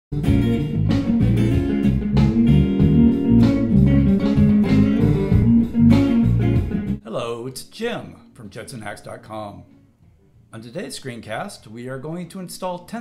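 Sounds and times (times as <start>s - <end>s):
guitar-led instrumental music: 0.1s - 7.0s, 7.7s - 10.5s.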